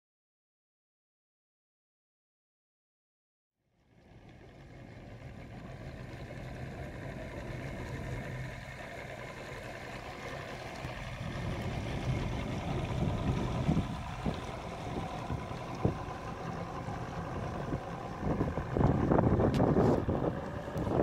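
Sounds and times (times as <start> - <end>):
wind: 3.6 - 21.0
boat motor running: 3.7 - 21.0
water noise: 3.7 - 21.0.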